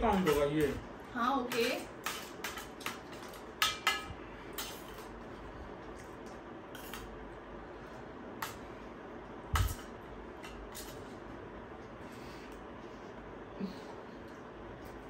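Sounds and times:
spoons clinking on metal plates: 0:00.0 - 0:00.8, 0:01.4 - 0:05.1.

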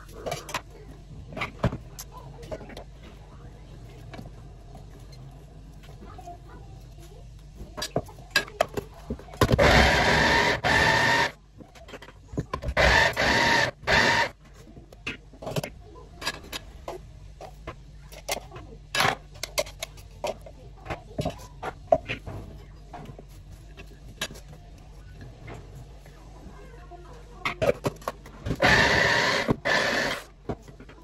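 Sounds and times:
electric chopper whirring: 0:09.6 - 0:11.4, 0:12.7 - 0:14.4, 0:28.6 - 0:30.3.

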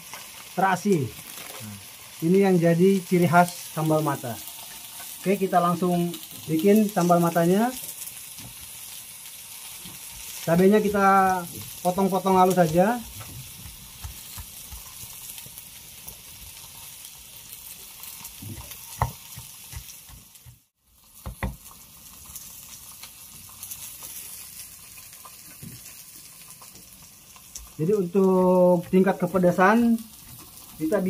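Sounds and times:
fish sizzling in oil: 0:00.0 - 0:31.0
cleaver chopping on wooden block: 0:18.5 - 0:20.3, 0:21.2 - 0:21.6.

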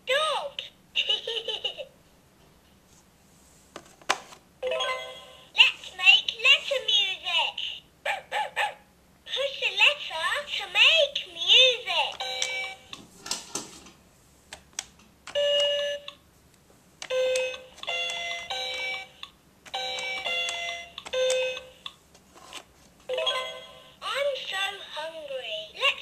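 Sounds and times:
toy electronic beeping notes: 0:19.8 - 0:21.8.

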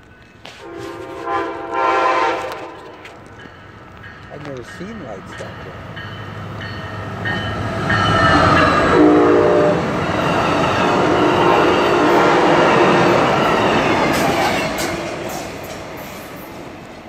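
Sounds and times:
train passing at speed: 0:00.0 - 0:17.0
train horn blast: 0:00.5 - 0:03.1, 0:08.4 - 0:10.0, 0:11.0 - 0:13.2.

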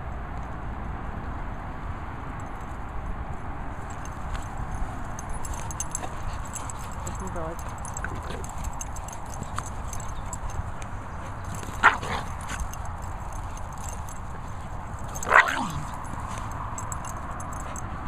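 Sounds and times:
dog barking: 0:11.3 - 0:14.2, 0:15.0 - 0:17.8.

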